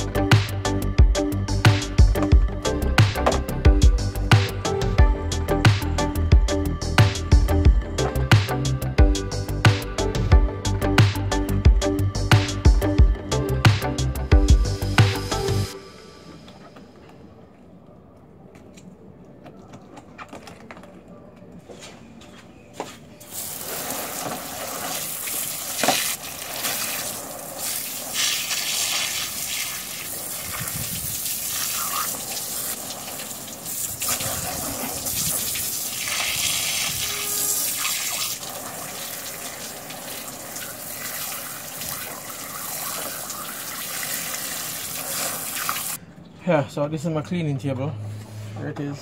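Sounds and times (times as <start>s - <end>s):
hose spray hissing and splashing: 23.3s - 46.0s.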